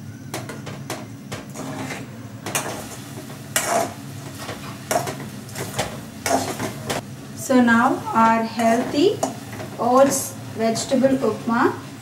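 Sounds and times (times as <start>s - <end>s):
metal spatula scraping a pan: 1.5s - 5.1s, 5.7s - 6.8s.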